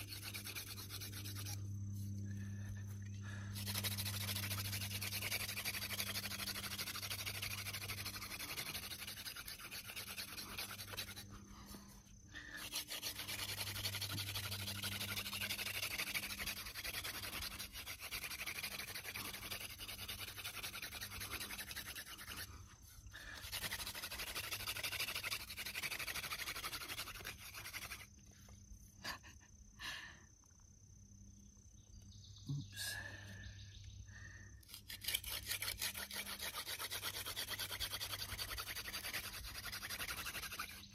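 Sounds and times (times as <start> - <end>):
spindle rasping on wood: 0.0 - 1.7, 3.6 - 11.5, 12.1 - 28.1, 34.7 - 40.9.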